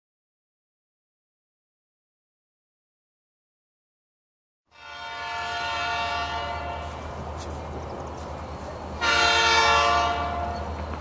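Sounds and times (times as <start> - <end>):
locomotive air horn blast: 4.7 - 7.1, 9.0 - 10.7.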